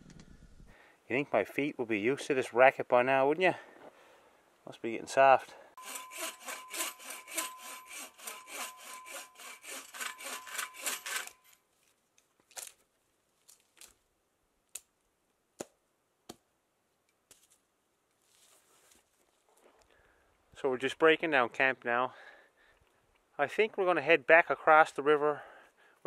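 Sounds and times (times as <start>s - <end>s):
hand saw cutting log: 5.8s - 11.5s.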